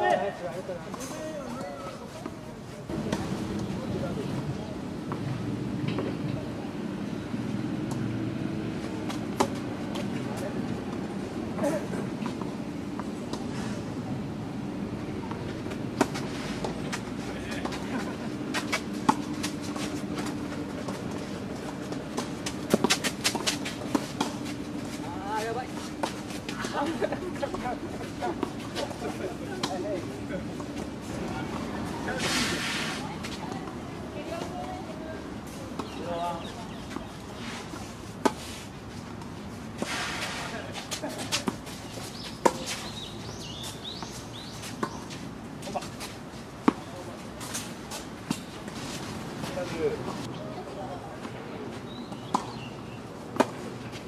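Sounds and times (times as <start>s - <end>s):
racket hitting tennis ball: 18.5s - 25.0s.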